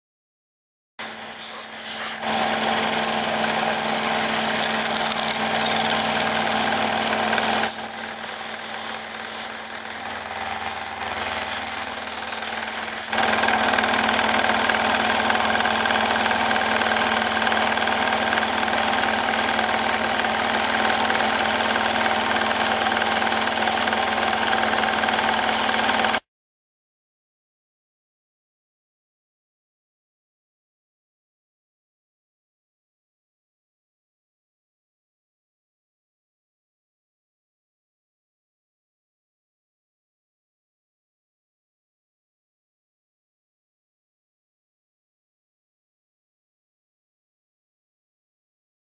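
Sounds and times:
milling machine whine and cutting: 1.0s - 26.2s.

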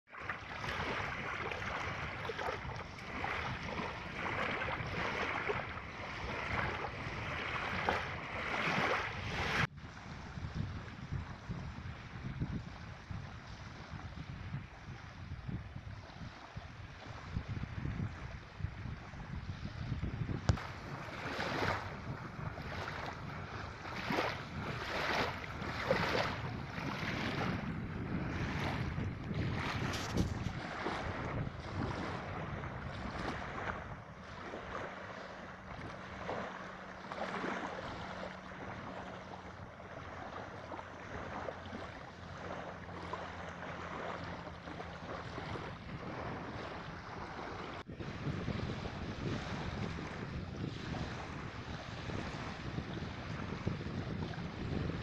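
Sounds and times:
small waves lapping on shore: 0.1s - 55.0s
wind rumbling on microphone: 0.1s - 55.0s.

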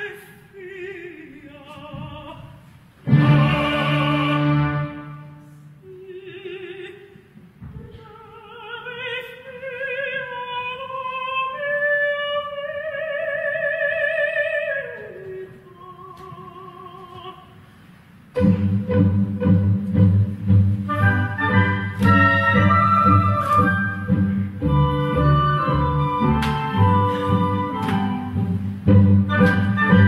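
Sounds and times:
soprano singing with vibrato: 0.0s - 17.6s
orchestra playing: 3.0s - 5.7s, 18.4s - 30.0s.

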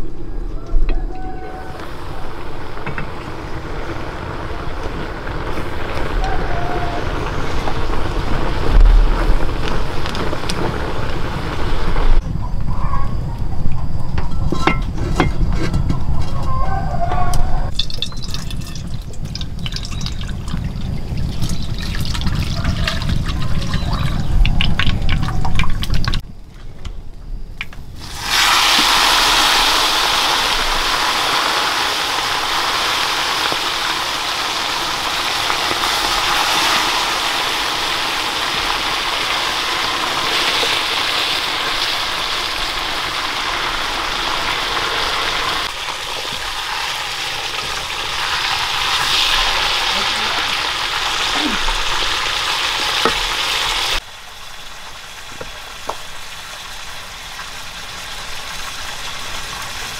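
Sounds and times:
wood fire crackling: 1.4s - 12.2s, 17.6s - 59.9s
fish sizzling in hot oil: 28.0s - 59.9s.

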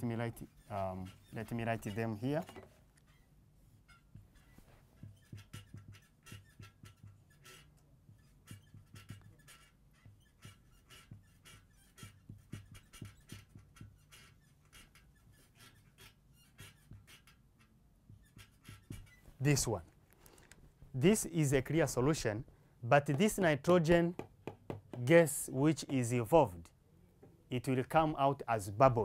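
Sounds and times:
marker pen writing on whiteboard: 0.0s - 19.9s, 23.0s - 26.2s.

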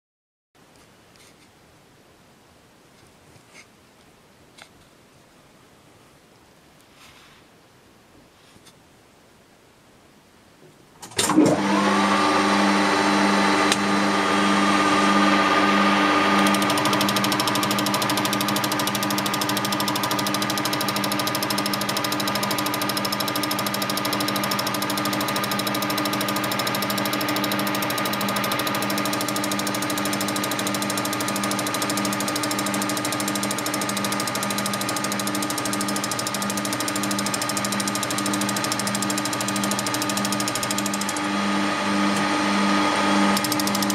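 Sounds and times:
metal lathe humming: 11.5s - 43.9s
cutting tool hissing: 15.1s - 41.4s, 42.0s - 43.9s.

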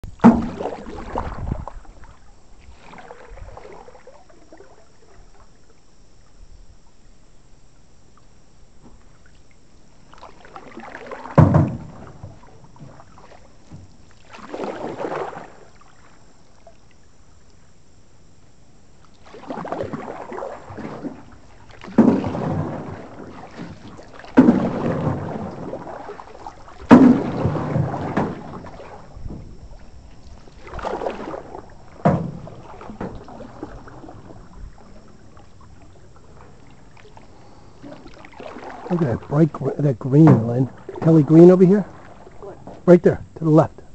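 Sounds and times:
paddle knocking on canoe: 0.0s - 4.0s, 10.1s - 16.1s, 19.1s - 43.9s
canoe paddle splashing: 0.0s - 43.9s.

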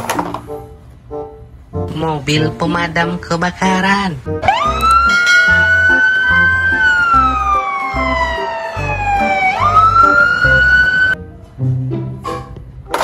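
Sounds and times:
fire engine siren wailing: 4.4s - 11.2s
background music with beat: 4.4s - 12.8s.

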